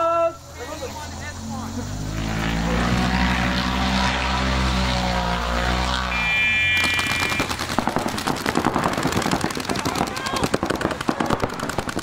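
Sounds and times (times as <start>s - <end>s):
high steady tone: 6.0s - 7.6s
paintball marker shots: 6.7s - 12.0s.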